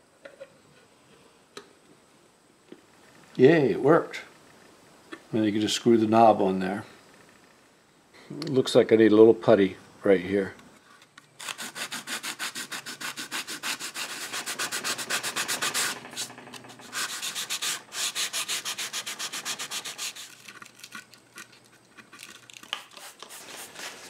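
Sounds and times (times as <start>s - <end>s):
sandpaper rubbing on wood: 11.4s - 20.5s, 22.8s - 24.0s.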